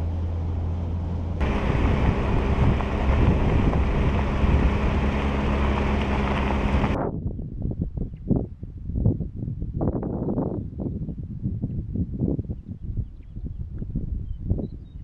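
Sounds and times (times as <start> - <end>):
truck engine and tyres humming: 0.0 - 7.0
wind rushing over microphone: 0.0 - 15.0.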